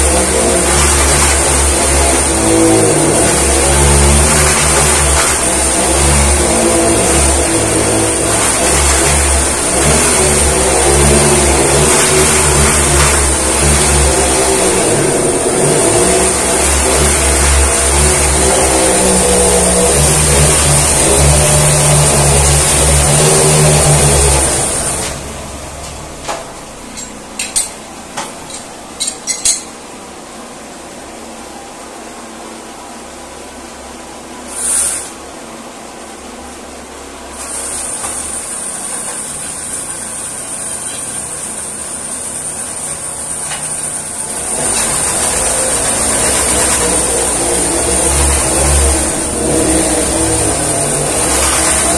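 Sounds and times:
drilling rig motor running: 0.0s - 29.6s, 37.3s - 51.9s
metallic clanks of drill rods: 26.9s - 29.7s.

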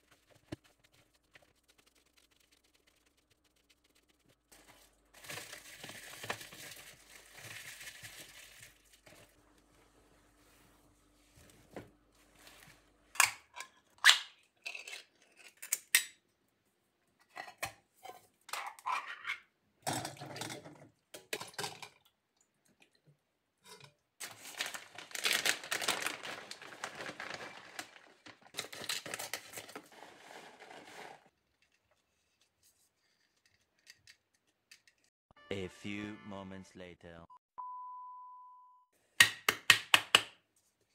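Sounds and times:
scraping and rustling: 25.7s - 33.7s.

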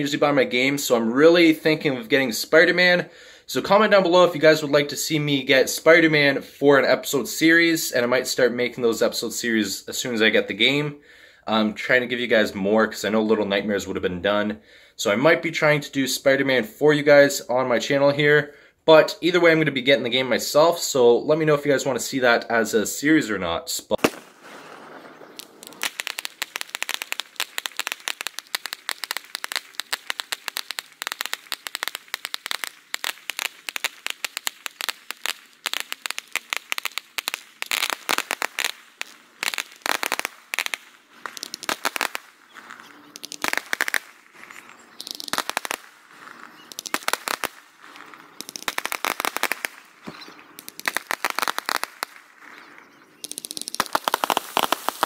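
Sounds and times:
fireworks popping and crackling: 23.9s - 55.0s.

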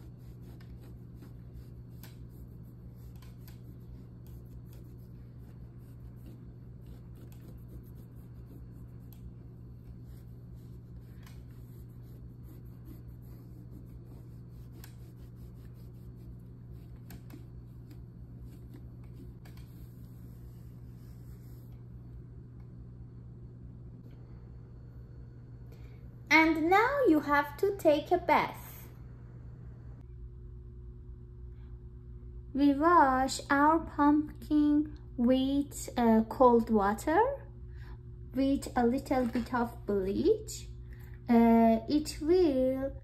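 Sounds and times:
cloth rubbing on pumpkin: 0.0s - 21.8s
steady low hum: 0.0s - 43.0s.

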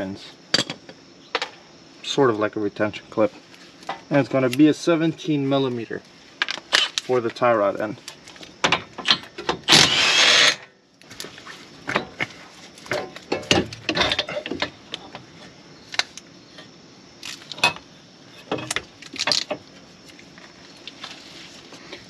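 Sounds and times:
loud tool burst: 9.7s - 10.7s.

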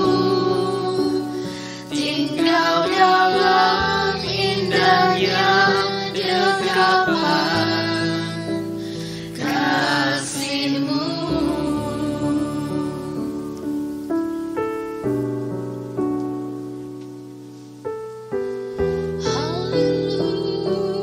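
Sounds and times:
woman singing: 0.0s - 13.6s, 19.2s - 21.0s.

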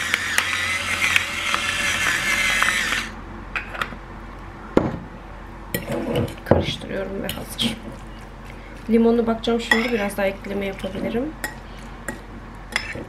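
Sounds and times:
electric pepper mill grinding: 0.0s - 3.2s.

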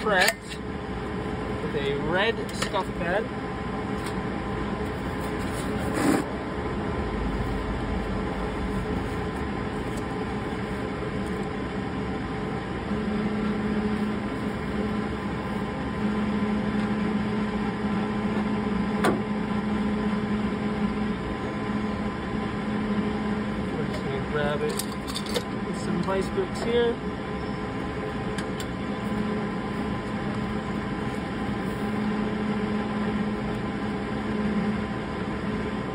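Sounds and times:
mechanical hum: 0.0s - 35.9s.

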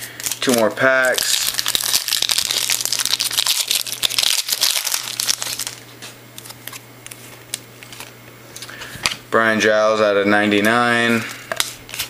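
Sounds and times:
foil wrapper crinkling: 0.1s - 8.7s
cards clicking and rustling: 0.1s - 9.2s, 11.5s - 12.0s.

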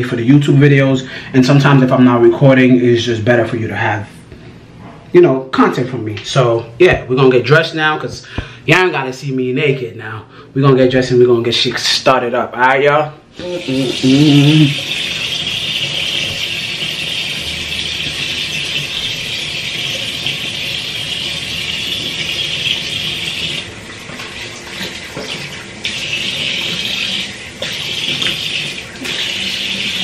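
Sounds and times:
tap water running into sink: 13.3s - 30.0s.

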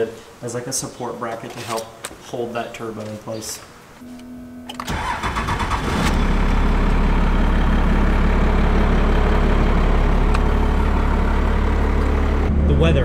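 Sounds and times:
diesel engine starting and idling: 4.7s - 13.0s.

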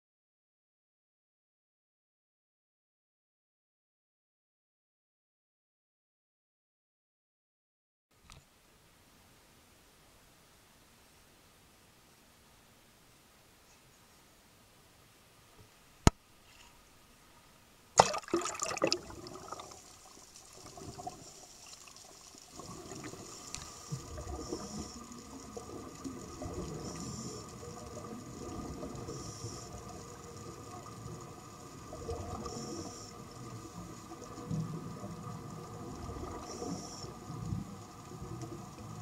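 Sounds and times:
splash into water: 18.0s - 19.8s
underwater gurgling and bubbling: 18.0s - 39.0s.

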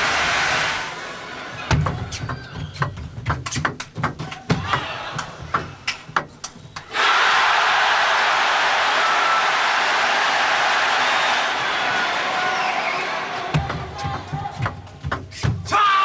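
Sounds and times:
crowd applause: 0.0s - 1.6s, 6.9s - 13.6s.

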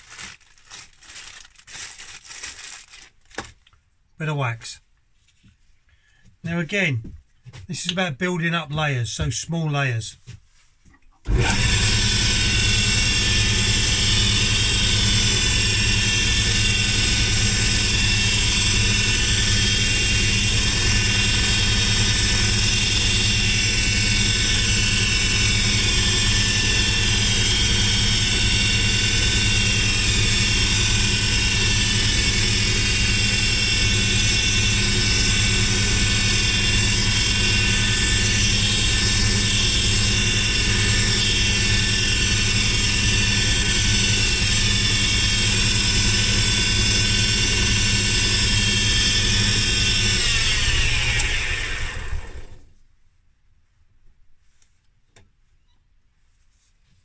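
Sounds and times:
wood lathe motor running: 11.3s - 52.7s.

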